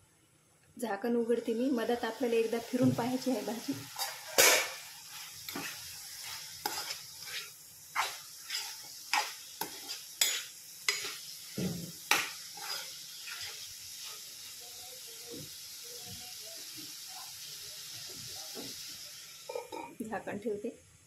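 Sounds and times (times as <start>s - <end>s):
vegetables sizzling: 1.0s - 20.6s
spoon scraping pan: 3.8s - 14.3s.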